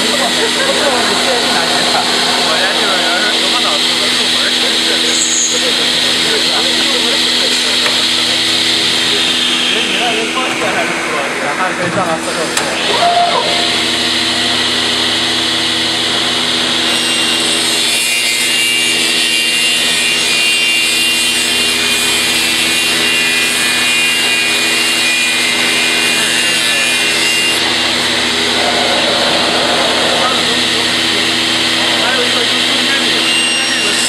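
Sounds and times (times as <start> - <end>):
circular saw cutting wood: 0.0 - 11.5, 13.5 - 34.0
machine motors humming: 0.0 - 18.8, 24.9 - 34.0.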